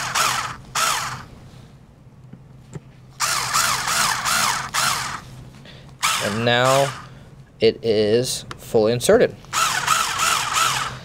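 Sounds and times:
screwdriver whirring: 0.0s - 1.3s, 3.2s - 5.3s, 6.0s - 7.1s, 9.5s - 11.0s.

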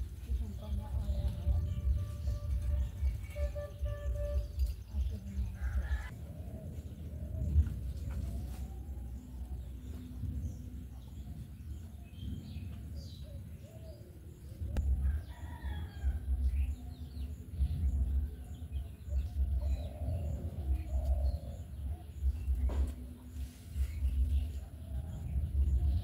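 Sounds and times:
low microphone rumble: 0.0s - 26.0s
rooster crowing: 15.0s - 16.5s.

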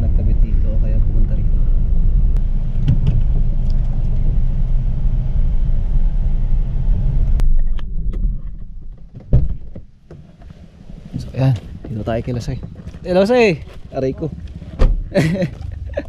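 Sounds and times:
car cabin rumble on dirt road: 0.0s - 16.0s
car door unlatching thump: 2.7s - 3.4s, 14.7s - 15.1s.

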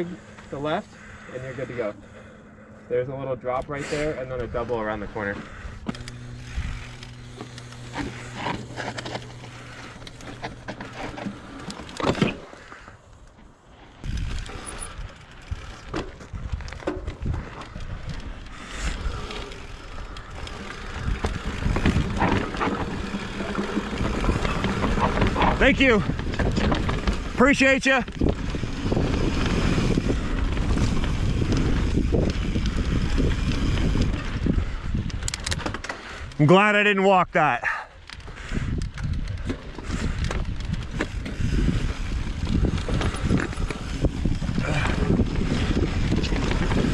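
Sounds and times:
steady buzz: 0.0s - 13.0s, 17.3s - 35.1s
bike tyres on dirt: 0.0s - 46.9s
wind rumble on microphone: 14.0s - 36.3s, 38.3s - 46.9s
chain and bike rattling: 14.0s - 36.4s, 38.0s - 46.9s.

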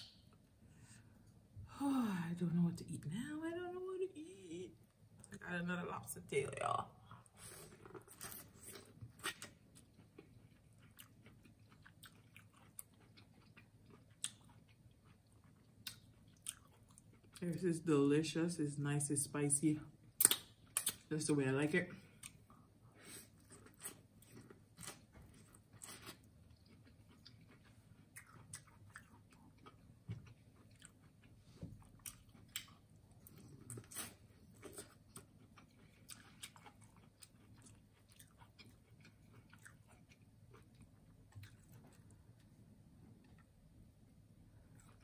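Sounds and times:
person chewing: 7.2s - 17.4s, 20.1s - 21.0s, 22.1s - 43.6s, 44.6s - 45.0s
wet mouth clicks and smacks: 20.2s - 21.0s.

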